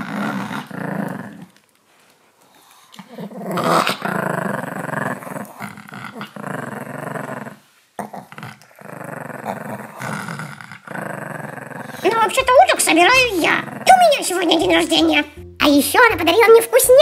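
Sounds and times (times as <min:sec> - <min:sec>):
small dogs growling: 0:00.0 - 0:01.6, 0:02.5 - 0:15.4.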